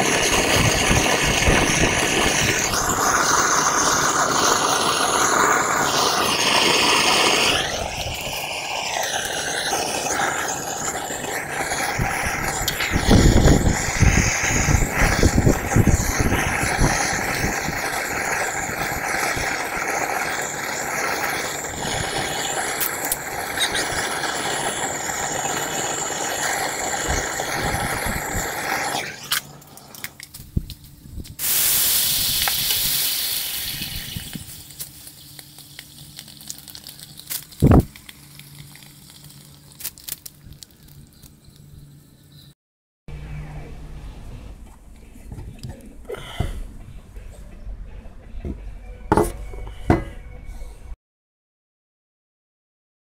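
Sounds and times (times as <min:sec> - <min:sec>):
sizzling hiss of steam: 0:00.0 - 0:29.4, 0:31.4 - 0:39.5
gas torch hissing: 0:00.0 - 0:29.6, 0:31.4 - 0:39.9.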